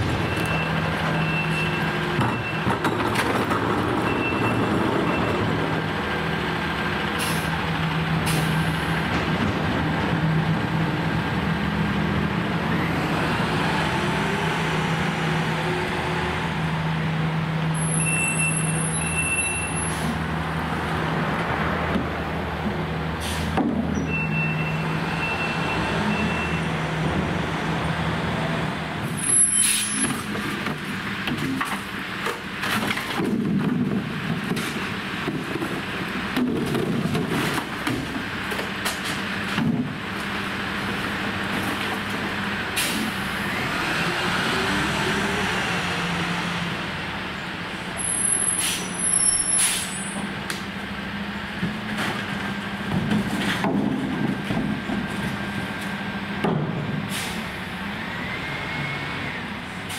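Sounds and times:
air brakes hissing: 7.2s - 7.5s, 8.2s - 8.8s, 23.2s - 23.6s, 29.1s - 30.1s, 48.1s - 50.2s, 57.1s - 57.6s
short high beep: 17.9s - 19.9s.

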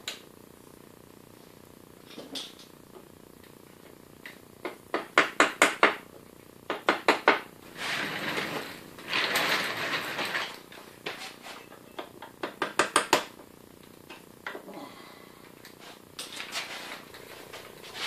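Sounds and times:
chair scraping on floor: 7.7s - 11.7s, 15.8s - 18.0s.

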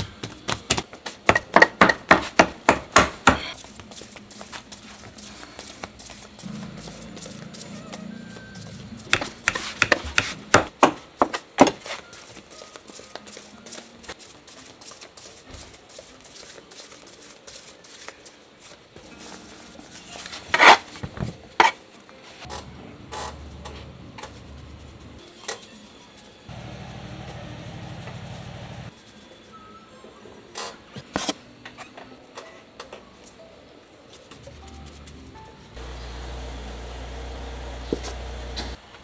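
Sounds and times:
hands working dough: 0.0s - 22.5s.

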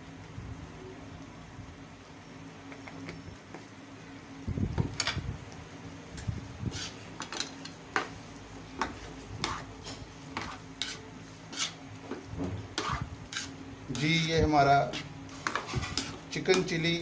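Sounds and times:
spatula scraping wok: 6.6s - 17.0s.

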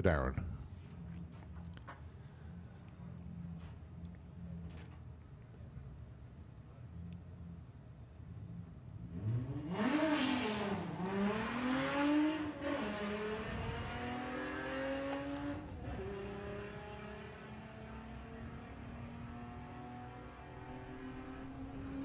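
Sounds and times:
car engines revving hard: 9.0s - 22.0s.

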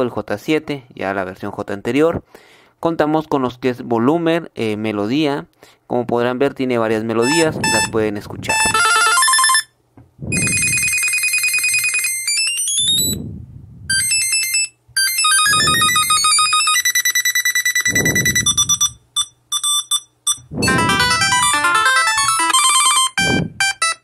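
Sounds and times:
electronic ringtone melodies: 7.2s - 9.7s, 10.3s - 13.2s, 13.9s - 24.0s.

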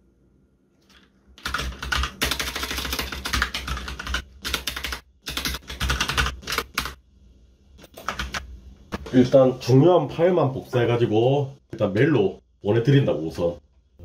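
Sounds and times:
fast typing on keyboard: 1.4s - 7.0s, 7.8s - 8.5s.

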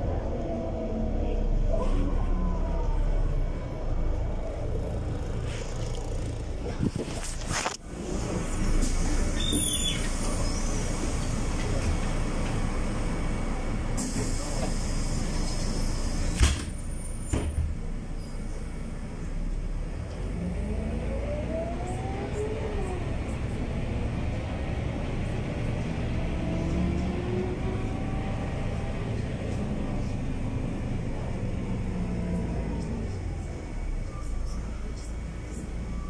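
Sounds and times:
bus engine accelerating: 0.0s - 36.0s.

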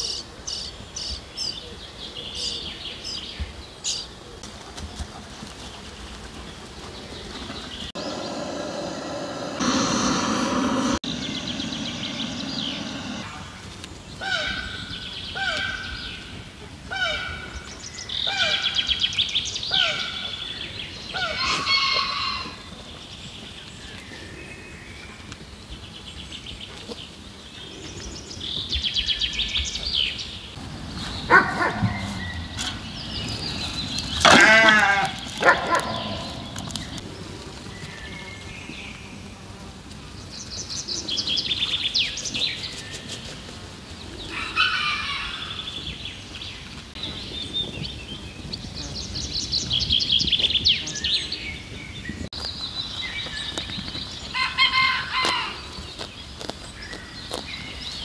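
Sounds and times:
sheep bleating: 34.2s - 35.2s.

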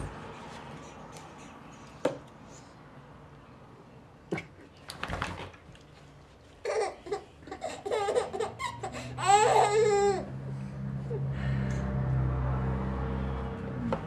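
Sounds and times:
baby laughing: 6.6s - 10.3s
baby squealing laugh: 6.6s - 10.3s.

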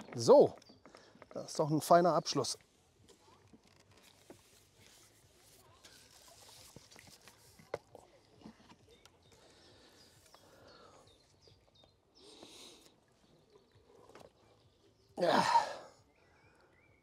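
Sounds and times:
soft clicks and rustles: 2.6s - 9.3s.

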